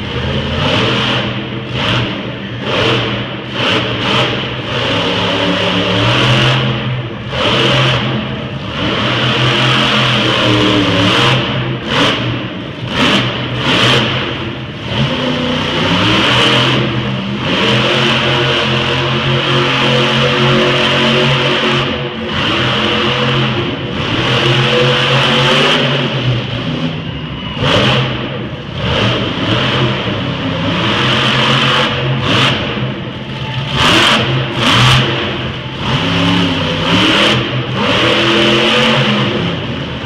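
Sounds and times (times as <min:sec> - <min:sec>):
monster truck engine revving: 0:00.0 - 0:40.0.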